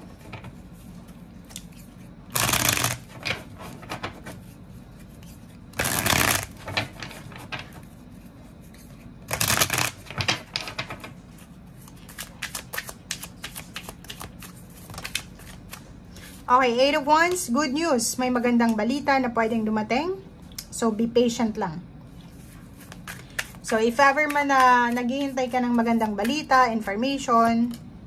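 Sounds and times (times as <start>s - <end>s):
cards shuffling: 0.4s - 8.0s, 8.6s - 16.4s, 22.4s - 26.5s.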